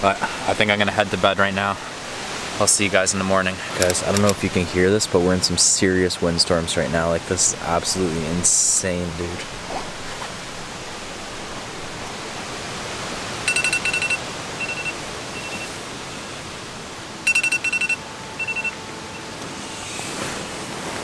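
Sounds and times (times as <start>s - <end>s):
electronic alarm beeping: 13.4s - 16.5s, 17.2s - 19.8s.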